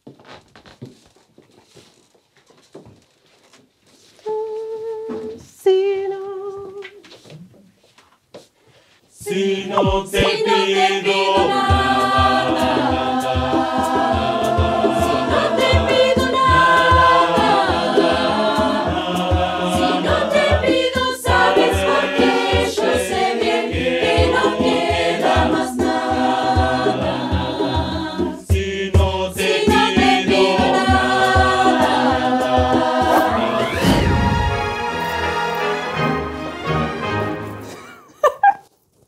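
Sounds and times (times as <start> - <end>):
mixed choir singing: 9.2 - 37.5
conga drums: 9.7 - 35.6.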